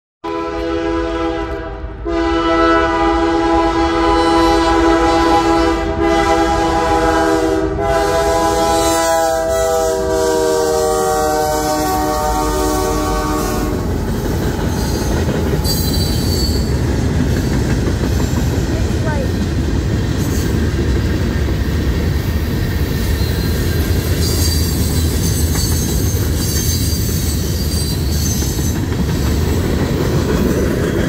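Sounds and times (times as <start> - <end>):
locomotive air horn: 0.2 - 13.9.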